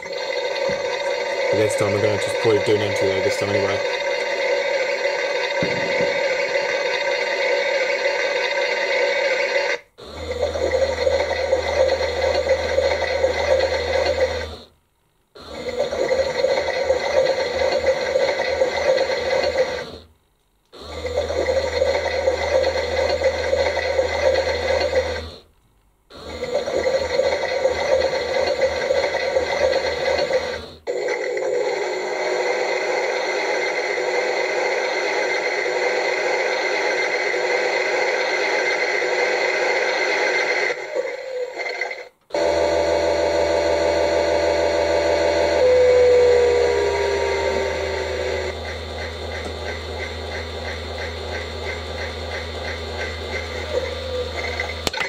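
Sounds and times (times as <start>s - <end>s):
toy washing machine drum running: 0.0s - 7.9s, 10.2s - 14.5s, 15.6s - 19.9s, 21.0s - 25.2s, 26.3s - 31.7s, 42.4s - 55.0s.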